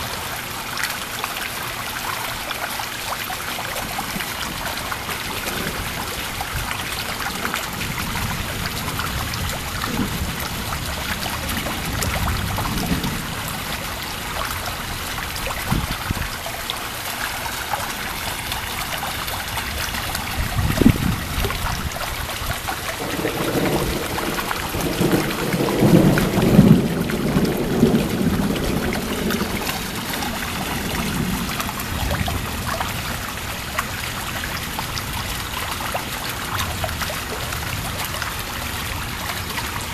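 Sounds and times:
steady rain: 0.0 - 39.9
thunder rumble: 3.8 - 13.9, 18.6 - 33.4
thunder clap: 4.2 - 13.5, 23.0 - 32.7.

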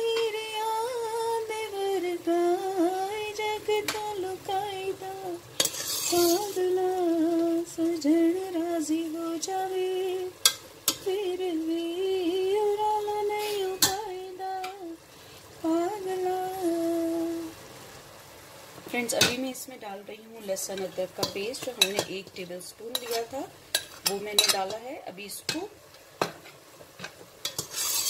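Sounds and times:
chicken frying in oil: 0.0 - 28.0
spoon scraping pot: 5.6 - 6.6, 22.9 - 24.8, 26.3 - 28.0
woman humming: 11.1 - 15.0
spoon clinking against pot: 22.9 - 24.7.

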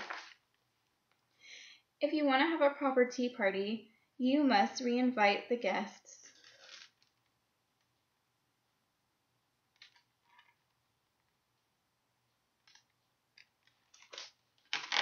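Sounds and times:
paper pages rustling: 0.0 - 0.4.

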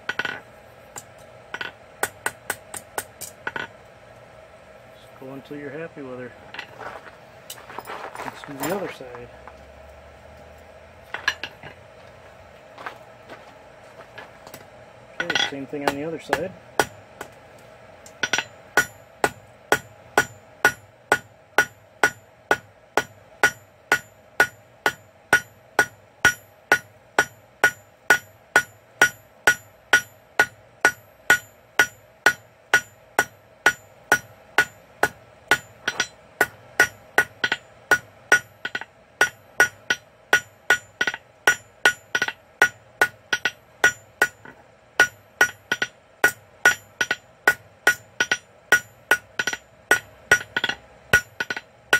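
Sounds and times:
hammer striking steel on anvil: 0.0 - 3.7, 15.2 - 17.4, 18.1 - 51.7
steady low hum: 0.0 - 51.9.

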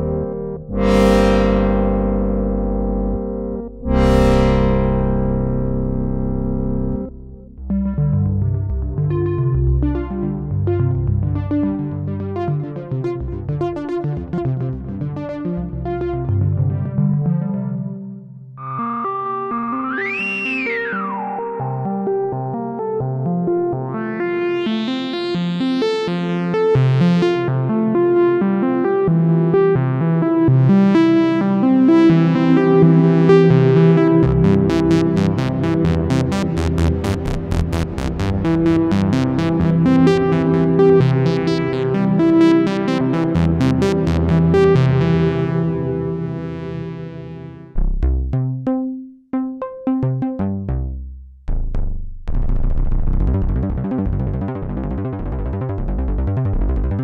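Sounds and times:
synthesizer repeating note pattern: 0.0 - 13.0, 31.9 - 51.0.

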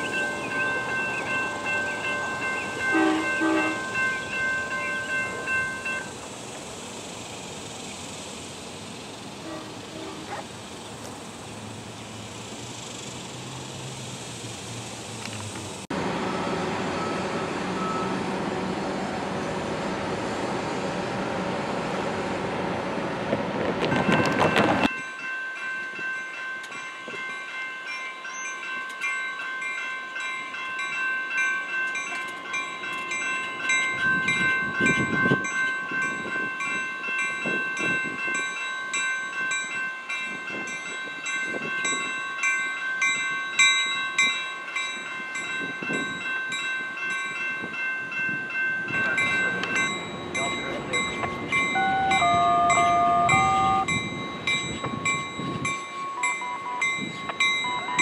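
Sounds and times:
railroad crossing bell ringing: 0.0 - 10.8, 16.2 - 19.1, 23.8 - 58.0
diesel train rumble: 0.0 - 24.9, 46.8 - 58.0.

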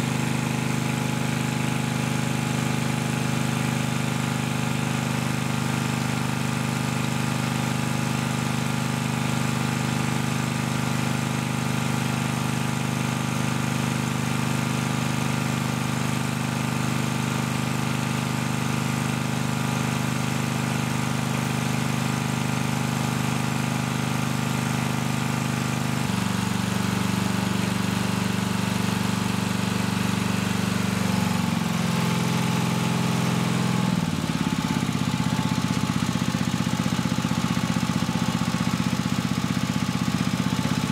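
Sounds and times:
pump motor running: 0.0 - 40.9.

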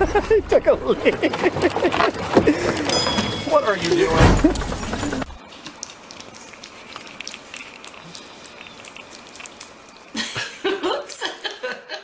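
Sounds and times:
puppy lapping food: 5.5 - 10.6.

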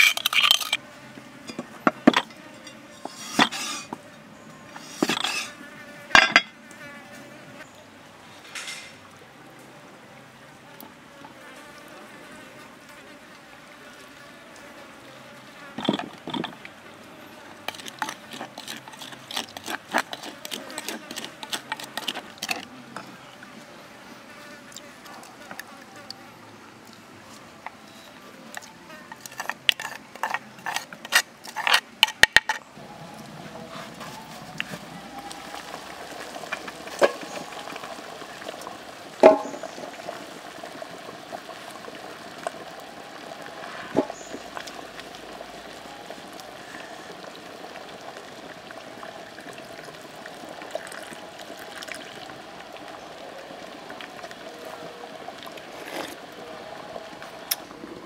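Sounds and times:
coconut shell scraping: 0.0 - 0.8, 1.5 - 4.0, 4.7 - 5.6, 17.6 - 23.1, 27.3 - 32.7, 55.5 - 56.3
insects buzzing: 43.7 - 46.0.

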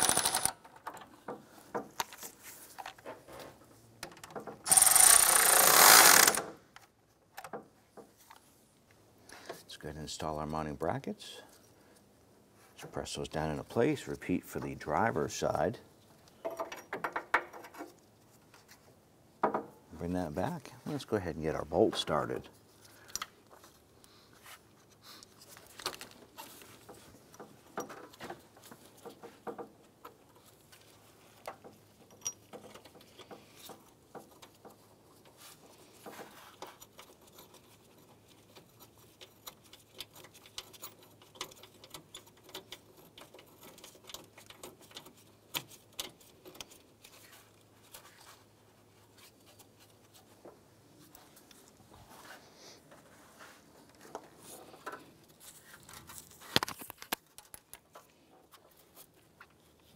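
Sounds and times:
small clicks and scrapes on metal: 22.0 - 51.8, 52.8 - 59.9.

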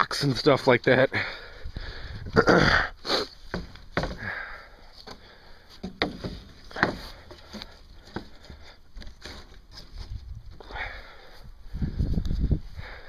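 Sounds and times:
light knocks and rustles: 5.8 - 10.6.

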